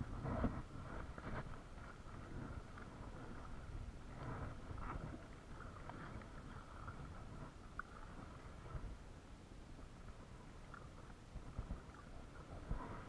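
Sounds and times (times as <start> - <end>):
water lapping against kayak hull: 0.0 - 13.0
wind rumbling on microphone: 0.0 - 13.0.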